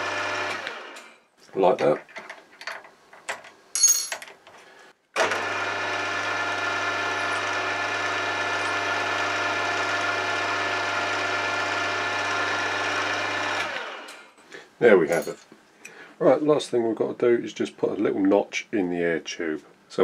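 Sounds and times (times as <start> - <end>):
milling machine spindle humming: 5.2 - 14.1.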